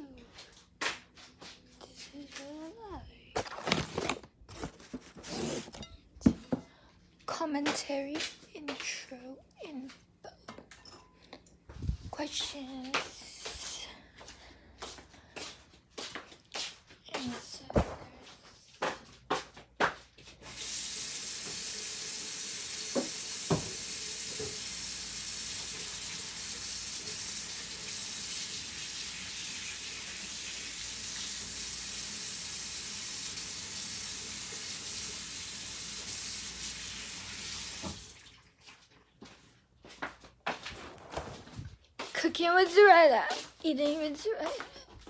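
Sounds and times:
kitchen tap running into sink: 20.4s - 38.5s.

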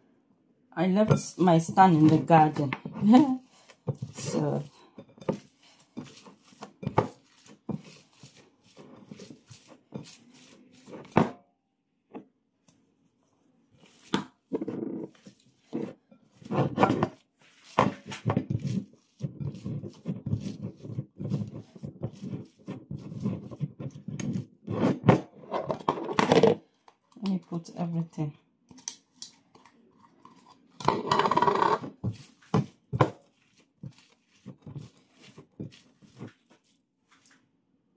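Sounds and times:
hands kneading minced meat: 0.9s - 11.3s, 12.6s - 24.8s, 31.6s - 37.8s.

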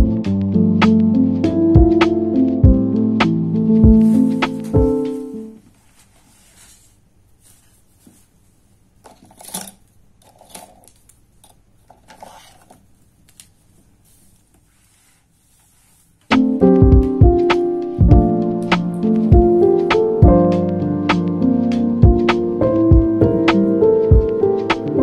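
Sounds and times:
piano background music: 0.0s - 5.6s, 16.3s - 25.0s
paper rustling and scraping: 5.7s - 8.3s, 11.9s - 12.8s, 13.4s - 16.3s.

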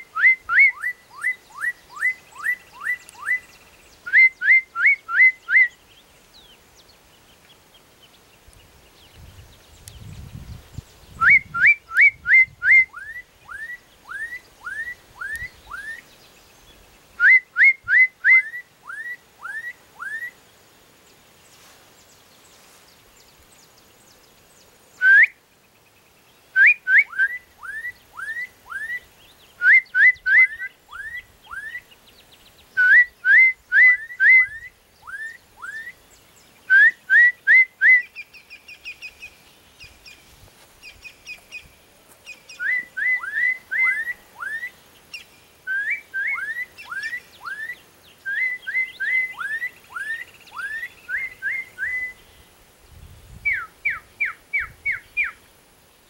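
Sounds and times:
bird singing slurred whistles: 0.0s - 6.5s, 9.0s - 20.4s, 24.9s - 25.4s, 26.5s - 40.2s, 40.8s - 52.4s, 53.3s - 55.4s
softer higher bird notes: 21.4s - 52.5s.

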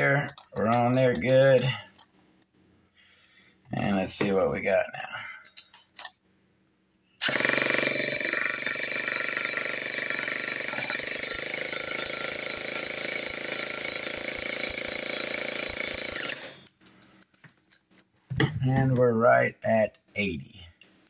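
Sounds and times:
electric starter cranking engine: 7.2s - 16.7s.

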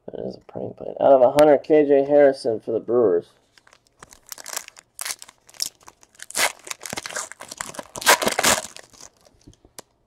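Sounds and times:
foil wrapper tearing and crinkling: 3.6s - 9.5s.

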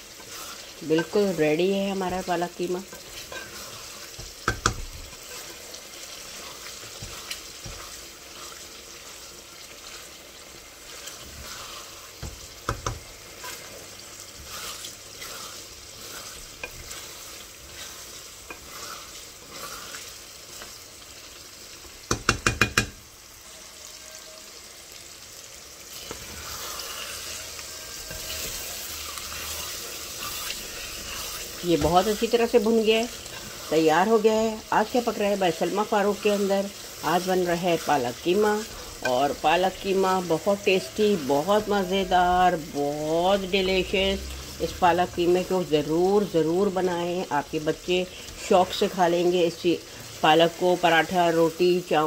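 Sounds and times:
wooden spoon scraping a pot: 0.0s - 20.8s, 25.9s - 42.0s
meat sizzling in a pot: 0.0s - 52.0s
knocks against a pot: 22.1s - 23.0s.

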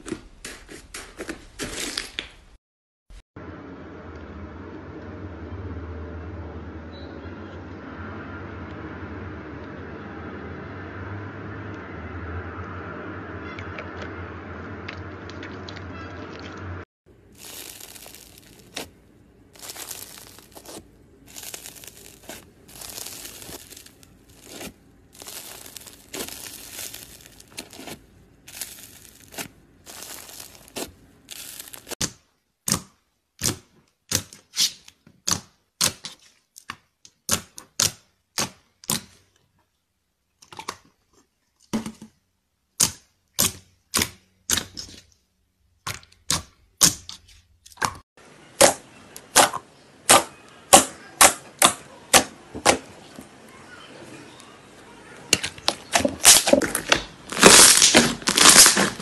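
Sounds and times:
slime crackling and crunching: 17.2s - 32.0s, 55.3s - 59.0s
slime air pockets popping: 55.7s - 59.0s.

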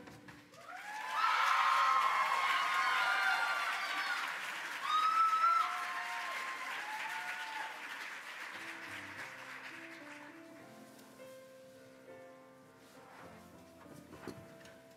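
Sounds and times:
audience applauding and cheering: 0.5s - 10.5s
high whoops: 0.6s - 7.9s.

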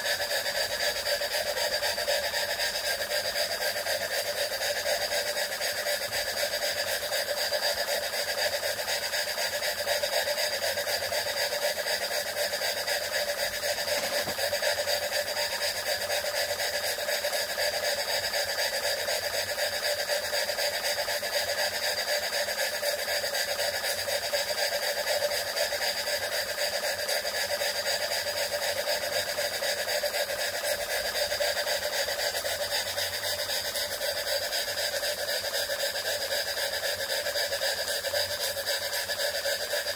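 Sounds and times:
model steam engine running: 0.0s - 39.9s.

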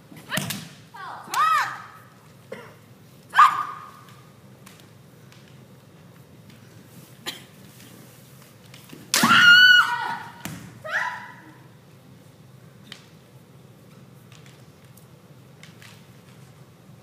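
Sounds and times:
woman shouting high-pitched: 1.0s - 2.0s, 3.3s - 3.9s.

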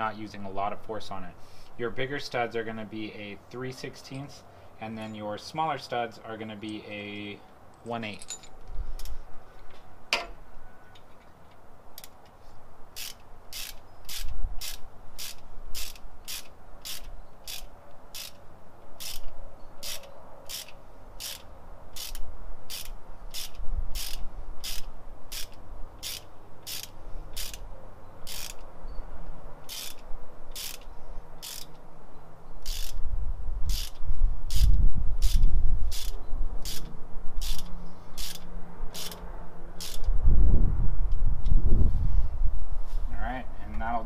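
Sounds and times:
hand ratchet clicking: 12.9s - 18.4s, 19.0s - 27.6s, 28.2s - 28.7s, 29.6s - 31.8s, 32.6s - 33.0s, 33.7s - 39.2s, 39.8s - 40.1s.

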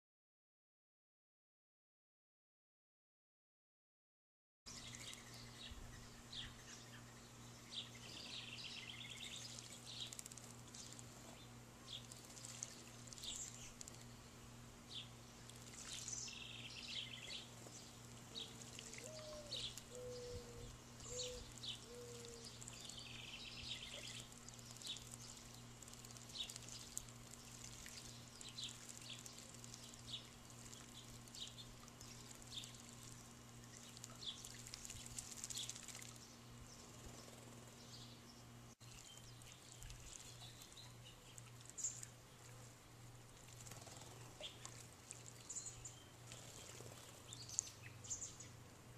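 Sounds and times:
sparrows chirping: 4.7s - 42.2s, 43.4s - 48.6s
birds splashing and wing-flutter: 8.2s - 20.1s, 20.9s - 37.8s, 38.8s - 47.8s.

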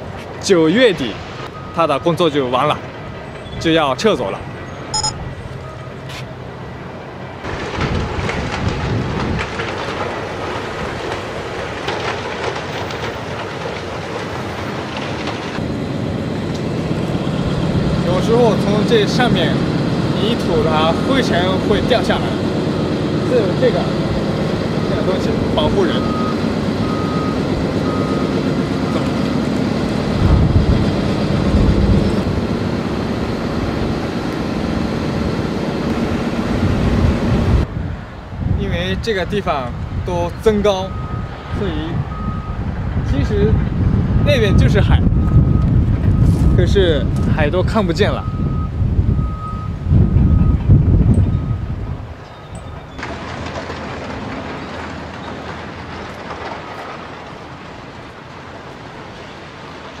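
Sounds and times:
heavy machinery rumble: 2.4s - 39.0s, 40.9s - 60.0s
short repeating beep: 4.9s - 5.9s.

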